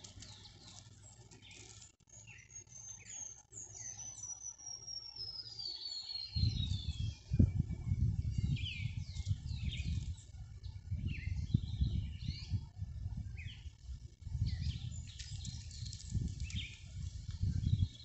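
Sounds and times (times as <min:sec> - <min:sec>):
wild birds chirping: 0:00.0 - 0:18.0.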